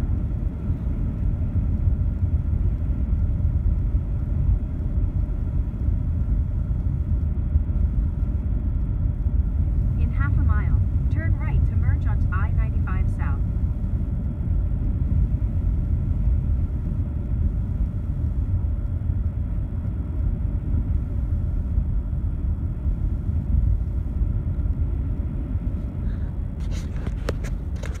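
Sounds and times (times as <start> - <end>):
car road and tyre noise: 0.0 - 28.0.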